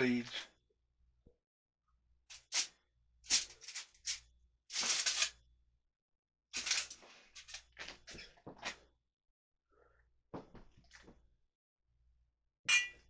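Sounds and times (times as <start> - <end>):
aluminum foil crinkling: 3.3 - 5.3, 6.6 - 7.8.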